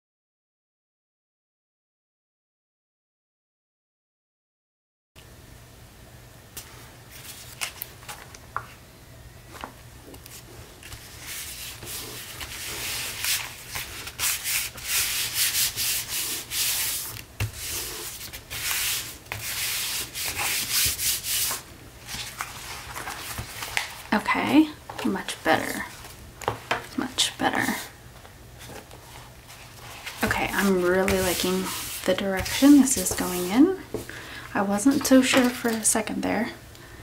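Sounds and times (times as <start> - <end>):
hands rubbing paper: 10.1 - 24.2, 28.6 - 33.8.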